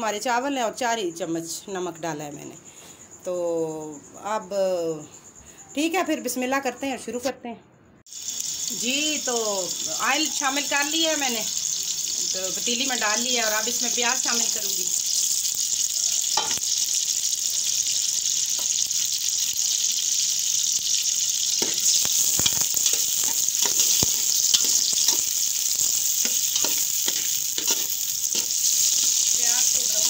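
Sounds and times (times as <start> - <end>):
onions sizzling in hot oil: 8.1 - 30.0.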